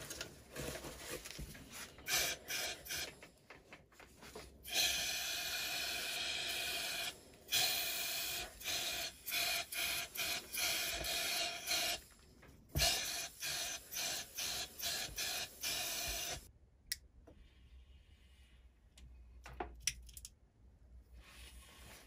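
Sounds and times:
compressed air hissing from gun: 0:02.0 - 0:03.2, 0:04.7 - 0:12.1, 0:12.8 - 0:16.5.

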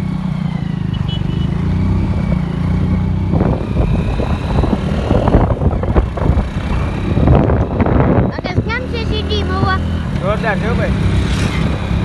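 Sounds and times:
motorcycle engine running: 0:00.0 - 0:12.0
wind buffeting on microphone: 0:03.2 - 0:10.1.

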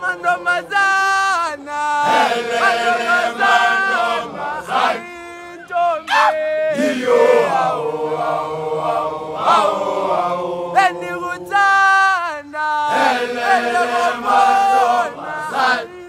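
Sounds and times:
boys chanting a song: 0:00.0 - 0:16.0.

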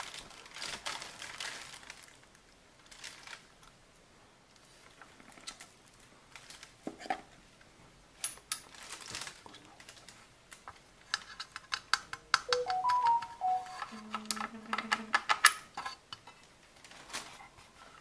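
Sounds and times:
background music with held notes: 0:12.5 - 0:14.1.

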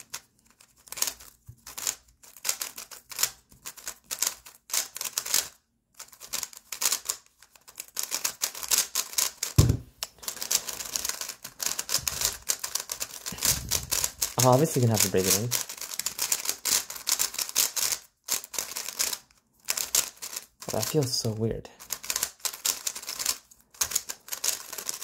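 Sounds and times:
plastic puzzle cube clicking: 0:00.0 - 0:20.7, 0:21.8 - 0:25.0
dull thump: 0:09.6 - 0:09.9.

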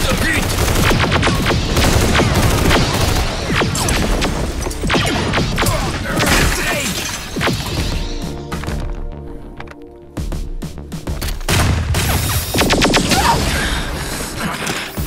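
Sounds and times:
gunshots: 0:00.0 - 0:08.3, 0:11.4 - 0:14.8
synthwave music: 0:07.4 - 0:15.0.

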